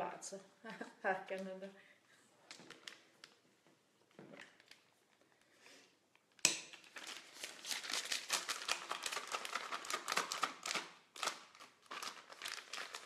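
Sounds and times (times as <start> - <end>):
plastic bag crinkling: 2.4 - 3.5, 4.1 - 5.2, 6.7 - 13.0.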